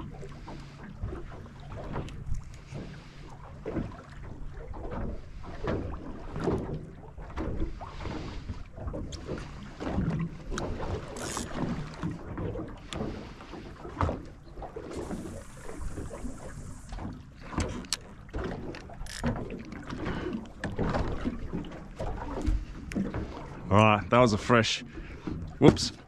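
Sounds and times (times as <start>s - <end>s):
fishing gear knocking and clattering: 10.5s - 12.0s, 17.5s - 21.2s
fishing reel clicks: 11.1s - 11.5s, 19.0s - 19.3s
fishing line hissing off reel: 11.2s - 11.5s, 15.0s - 16.9s.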